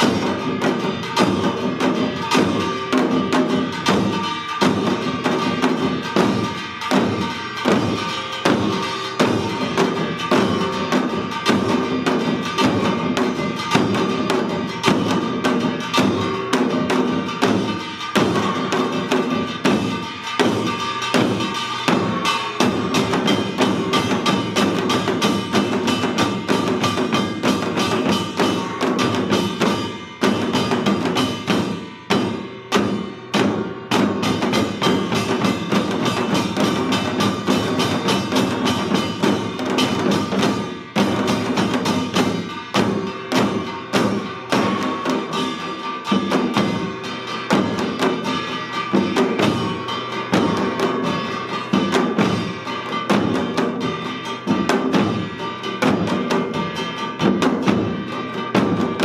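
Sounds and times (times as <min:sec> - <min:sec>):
fast drumming: 0:00.0 - 0:59.0.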